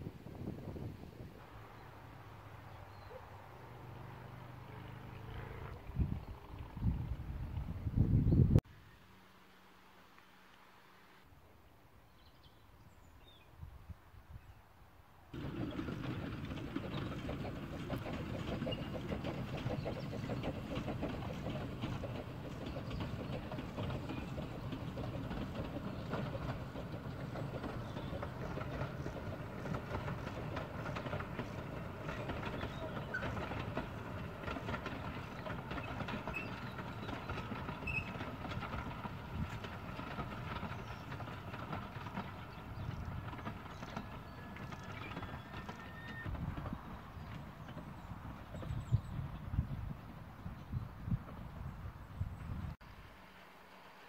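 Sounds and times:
wheels clicking over rail joints: 0:15.3 - 0:52.8
steam train rumbling and rattling: 0:15.4 - 0:54.0.

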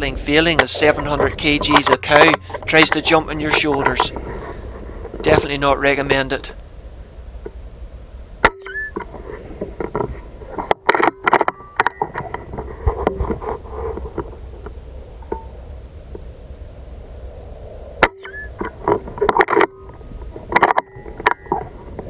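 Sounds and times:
low outdoor rumble: 0:00.0 - 0:22.0
sharp clicks and knocks: 0:00.4 - 0:04.3, 0:08.4 - 0:15.5, 0:18.0 - 0:22.0.

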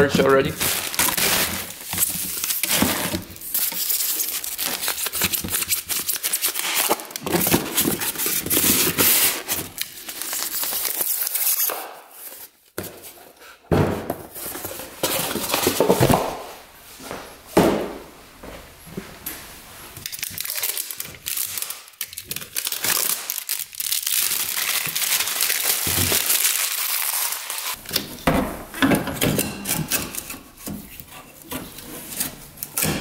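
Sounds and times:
plastic crinkling: 0:00.4 - 0:12.5, 0:20.0 - 0:27.8.

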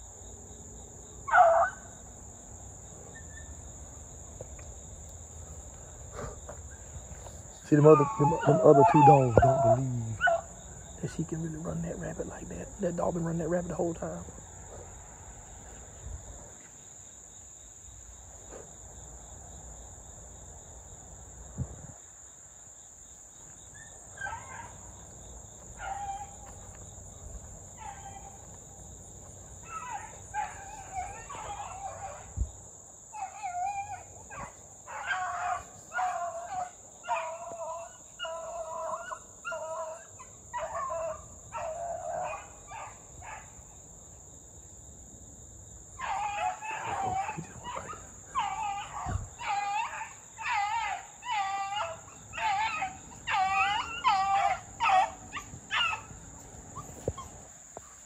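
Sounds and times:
crickets chirping: 0:00.0 - 0:58.0
dog baying: 0:07.7 - 0:10.5, 0:29.6 - 0:32.3, 0:33.2 - 0:43.4, 0:46.0 - 0:56.1.

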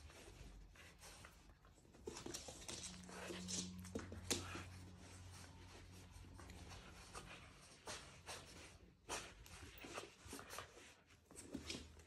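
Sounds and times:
leash and paws rustling on rug: 0:00.0 - 0:12.0.

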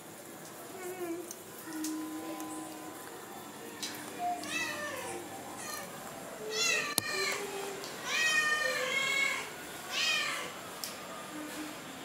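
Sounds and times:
cat meowing: 0:04.3 - 0:05.9, 0:08.0 - 0:10.5.

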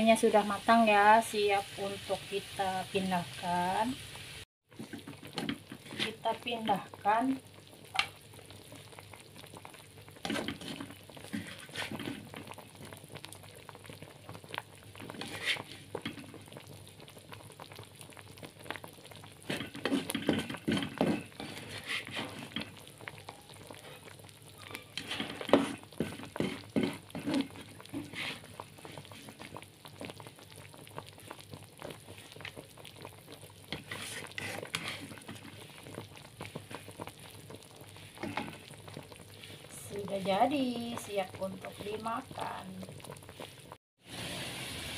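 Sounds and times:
faint sizzle: 0:00.0 - 0:44.9
utensil scraping a frying pan: 0:04.7 - 0:06.7, 0:10.2 - 0:12.6, 0:15.0 - 0:16.3, 0:19.4 - 0:22.8, 0:24.8 - 0:29.6, 0:33.7 - 0:37.0, 0:38.0 - 0:42.5.

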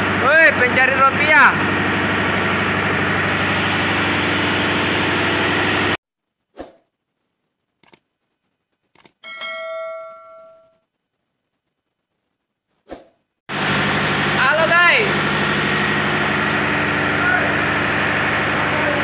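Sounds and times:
diesel engine running: 0:00.0 - 0:06.0, 0:13.5 - 0:19.0
mouse clicks: 0:07.8 - 0:08.0, 0:08.9 - 0:09.2
notification bell chime: 0:09.2 - 0:10.8.

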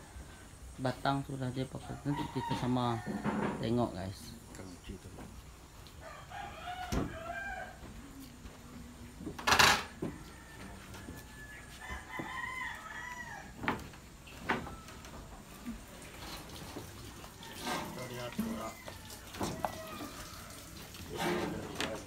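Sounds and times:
rooster crowing: 0:01.8 - 0:03.6, 0:06.0 - 0:08.0, 0:09.8 - 0:13.8, 0:17.3 - 0:21.7.

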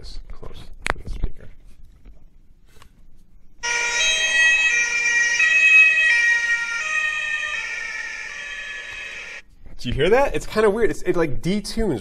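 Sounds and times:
siren through small loudspeaker: 0:03.6 - 0:09.4.

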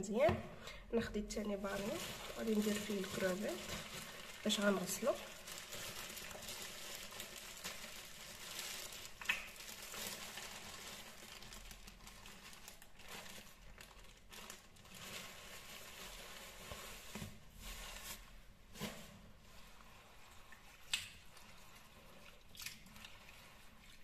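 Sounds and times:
plastic bag crinkling: 0:01.3 - 0:18.4.

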